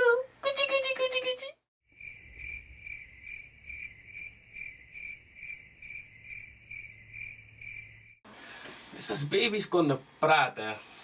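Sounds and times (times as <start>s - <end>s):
cricket chirping: 1.9s - 8.2s.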